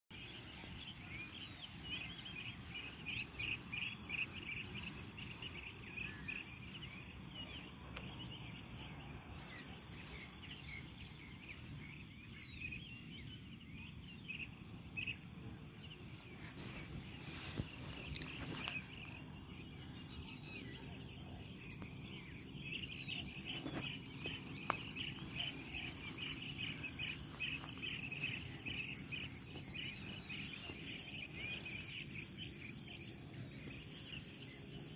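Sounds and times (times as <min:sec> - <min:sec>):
low rumbling outdoor noise: 0:00.1 - 0:34.9
insects trilling: 0:00.2 - 0:34.9.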